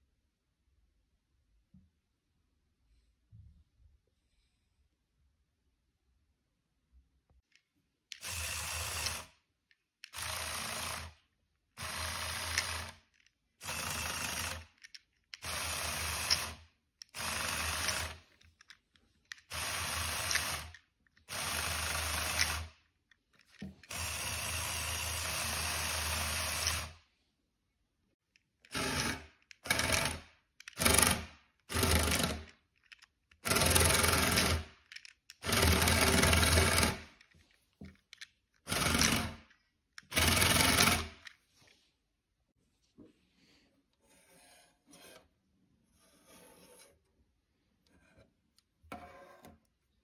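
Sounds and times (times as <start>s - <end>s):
small electric motors whirring: 8.1s - 9.4s, 10.0s - 11.2s, 11.8s - 22.8s.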